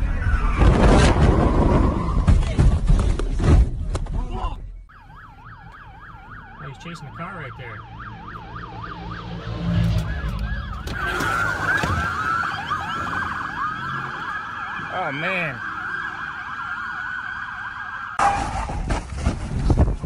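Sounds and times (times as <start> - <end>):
police sirens wailing: 4.9 - 18.4.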